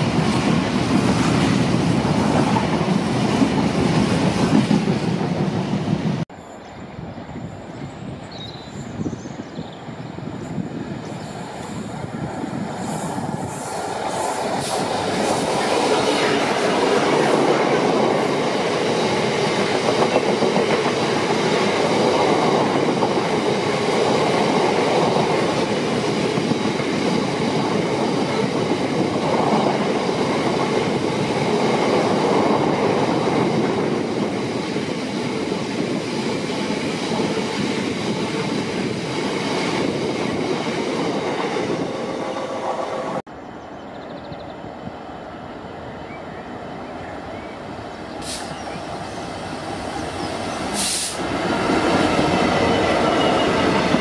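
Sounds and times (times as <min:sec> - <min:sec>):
diesel locomotive engine: 0:09.3 - 0:54.0
train wagons rolling past: 0:46.5 - 0:54.0.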